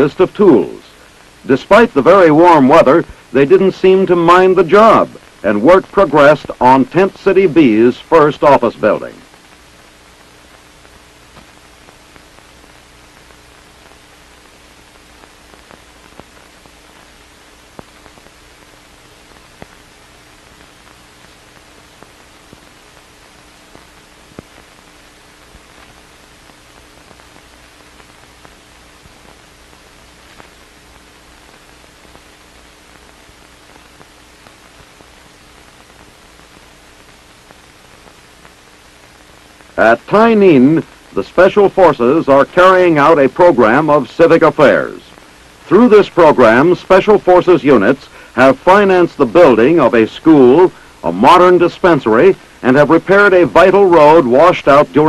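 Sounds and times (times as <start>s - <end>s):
faint steady hum: 0.0s - 55.0s
film soundtrack hiss: 0.0s - 55.0s
small clicks and pops: 9.2s - 39.8s.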